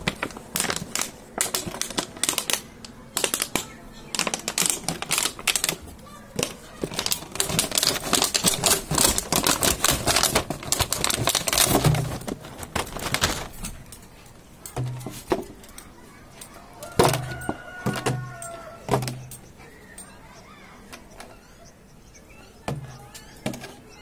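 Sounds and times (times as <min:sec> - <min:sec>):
plastic bottle crinkling: 0:00.0 - 0:13.9.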